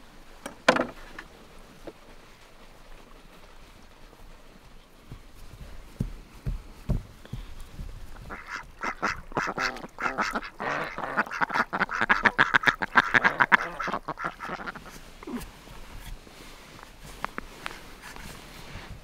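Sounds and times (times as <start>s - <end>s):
ducks quacking: 8.1s - 15.0s.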